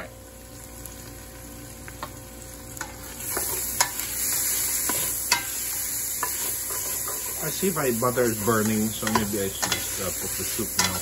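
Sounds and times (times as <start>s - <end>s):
food sizzling in butter: 0.0s - 11.0s
spatula scraping a pot: 3.2s - 7.8s.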